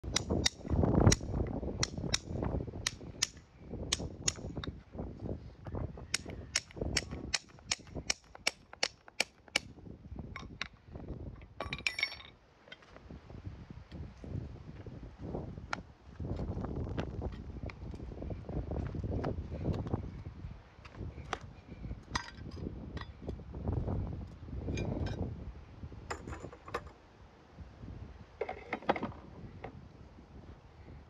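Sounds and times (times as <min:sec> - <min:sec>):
metal clinks ringing: 0:11.6 - 0:12.4.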